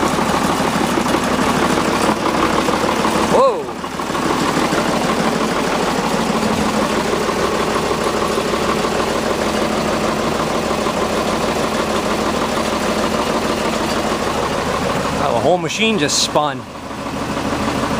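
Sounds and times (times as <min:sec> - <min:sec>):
loader engine running: 0:00.0 - 0:17.9.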